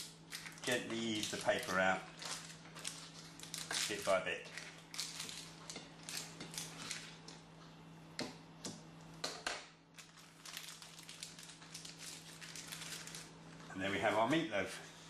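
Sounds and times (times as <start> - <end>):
paper liner rustling and crinkling: 0.3 - 7.3, 9.9 - 14.4.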